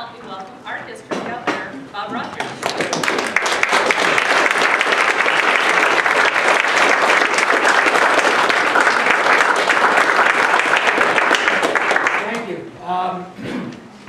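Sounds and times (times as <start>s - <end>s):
loud applause: 2.6s - 12.4s.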